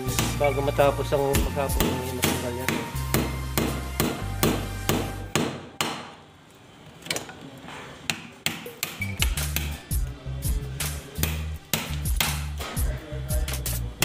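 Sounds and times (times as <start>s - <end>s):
hammer striking a chisel: 1.4s - 6.2s, 8.1s - 9.8s, 11.2s - 12.7s.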